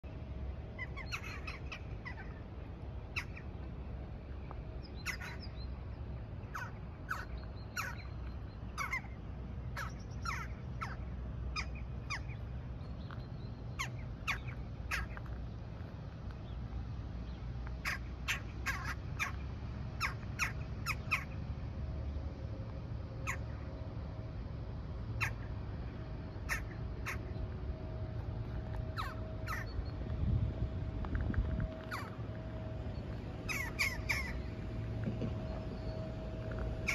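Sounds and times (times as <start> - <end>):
low background rumble: 0.0 - 36.9
crows calling harshly: 5.0 - 5.4, 9.8 - 11.0, 17.8 - 19.4, 29.0 - 29.7, 33.5 - 34.4.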